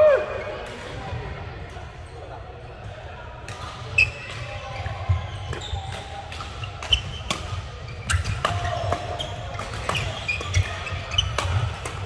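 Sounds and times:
shoes squeaking on court: 0:03.9 - 0:12.0
racket hitting shuttlecock: 0:05.5 - 0:12.0.

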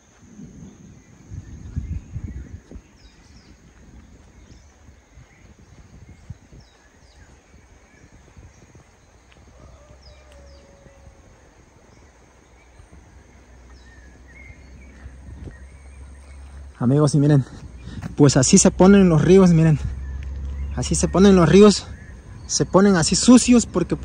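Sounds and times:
birds chirping: 0:00.0 - 0:24.0
wind rumble on microphone: 0:00.0 - 0:24.0
bird falling call: 0:09.4 - 0:12.8.

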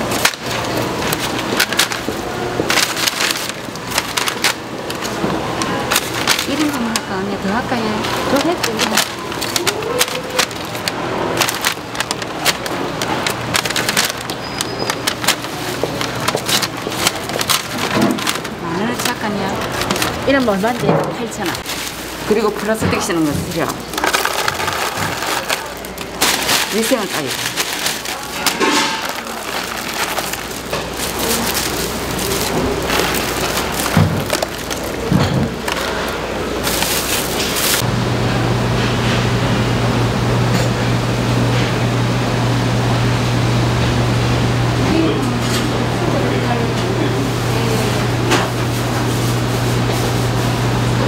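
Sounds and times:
fried food crackling: 0:00.0 - 0:37.8
paper bag rustling: 0:00.0 - 0:37.9, 0:47.1 - 0:50.9.

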